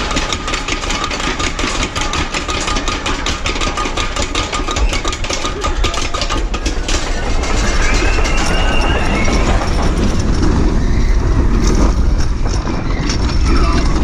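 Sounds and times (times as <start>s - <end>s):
roller coaster track clicking: 0.0s - 14.0s
wheel and wind rush: 0.0s - 14.0s
wind rumble on microphone: 6.7s - 14.0s.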